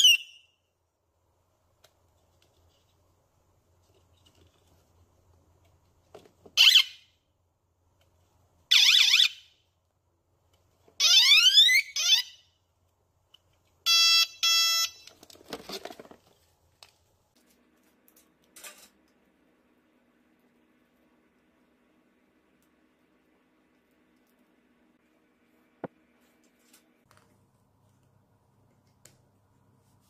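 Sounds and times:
electronic bicycle horn chirps: 0:13.9 - 0:15.1.

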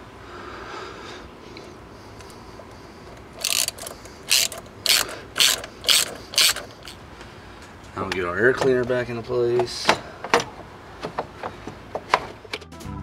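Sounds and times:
ratchet wrench clicking: 0:03.4 - 0:07.0.

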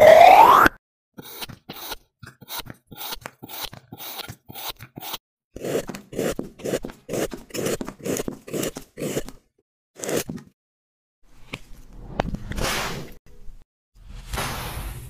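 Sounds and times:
blade slicing through foam: 0:01.2 - 0:09.4, 0:10.0 - 0:10.3
scissors snipping foam: 0:01.2 - 0:10.4.

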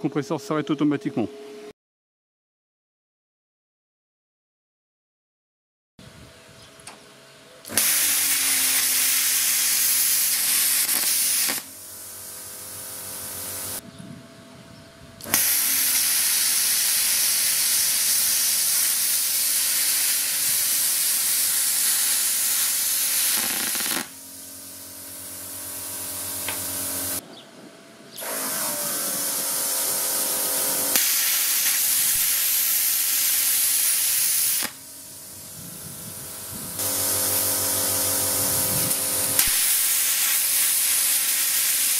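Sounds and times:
compressor and fan humming: 0:06.0 - 0:41.9
plasma cutter hissing: 0:07.7 - 0:13.8, 0:15.2 - 0:27.2, 0:28.2 - 0:41.9.

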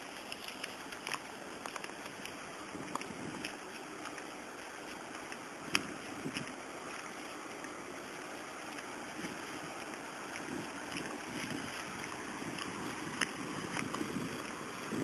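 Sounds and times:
wind noise on microphone: 0:02.6 - 0:03.6, 0:05.6 - 0:06.6, 0:09.0 - 0:15.0.

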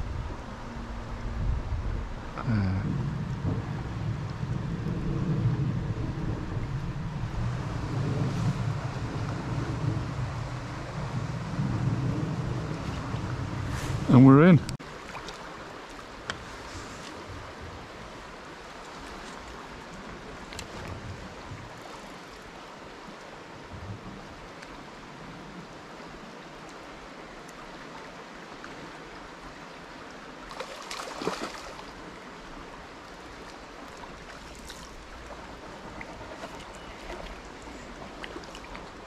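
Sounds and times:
river water rushing over riffle: 0:13.0 - 0:39.0.

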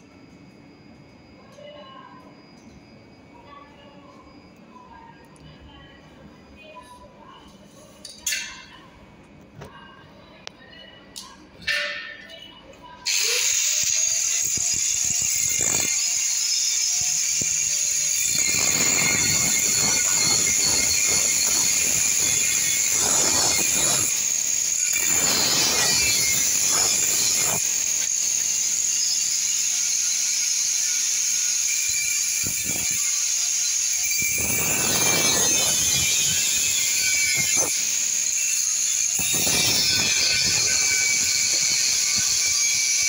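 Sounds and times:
angle grinder whining: 0:13.1 - 0:43.0
grinder cutting metal: 0:13.1 - 0:43.0.

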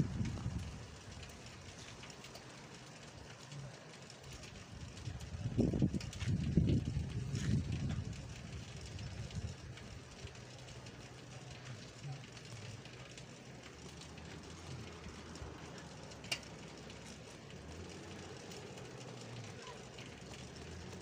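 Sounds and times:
vehicle engine and tyres rumbling: 0:00.0 - 0:21.0.

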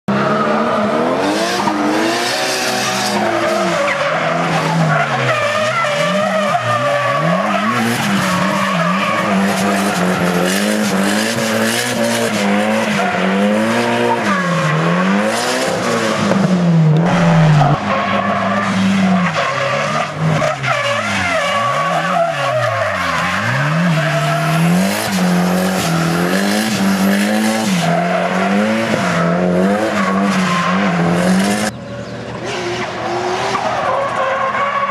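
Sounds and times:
car engine revving: 0:00.1 - 0:34.8
tyres squealing and skidding: 0:00.1 - 0:34.9.

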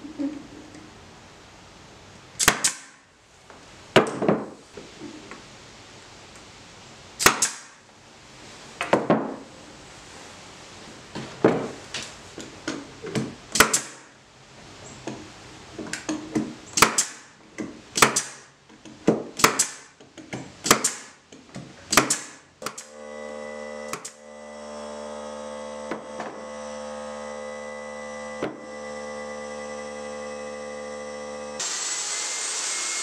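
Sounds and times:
air nailer firing: 0:02.4 - 0:03.1, 0:07.2 - 0:07.8, 0:13.5 - 0:14.1, 0:16.8 - 0:17.3, 0:18.0 - 0:18.5, 0:19.4 - 0:20.0, 0:20.6 - 0:21.2, 0:21.9 - 0:23.1, 0:23.8 - 0:24.4
steady motor hum: 0:22.9 - 0:31.6.

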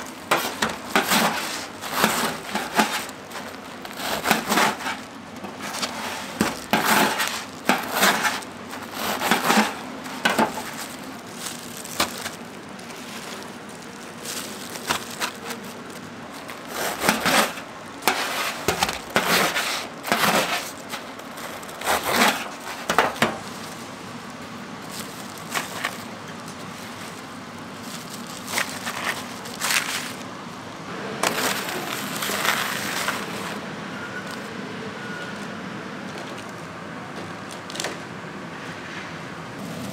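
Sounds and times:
knife crunching through fried food: 0:00.2 - 0:22.9.

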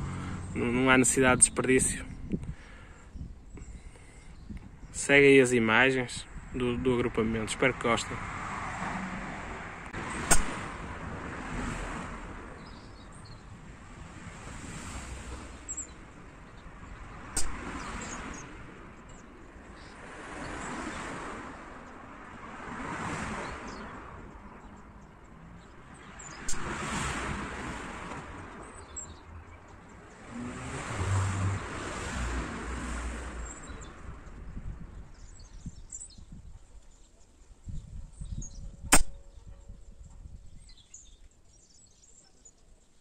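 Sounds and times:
outdoor background noise: 0:00.0 - 0:43.0
sharp cracks: 0:10.2 - 0:10.9, 0:17.3 - 0:17.9, 0:38.9 - 0:39.2.

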